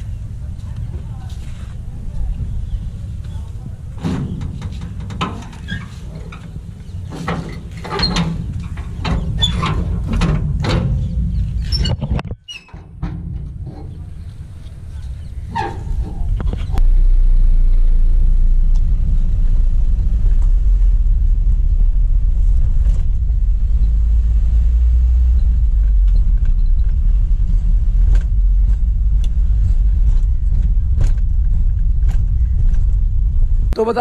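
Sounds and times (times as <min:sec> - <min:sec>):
diesel engine rumbling: 0:00.0 - 0:34.0
clicks and rattles: 0:04.0 - 0:16.8.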